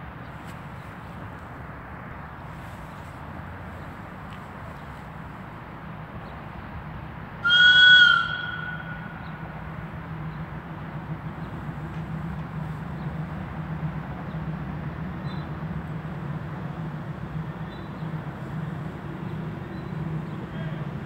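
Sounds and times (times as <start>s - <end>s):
diesel locomotive rumble: 0.0s - 21.0s
two-tone locomotive horn blast: 7.4s - 9.2s.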